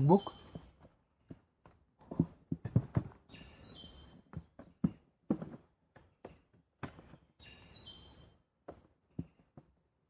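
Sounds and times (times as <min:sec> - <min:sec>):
small bird chirping: 0:00.0 - 0:00.8, 0:03.2 - 0:04.9, 0:07.0 - 0:08.4
soft knocks and rustles: 0:00.5 - 0:03.3.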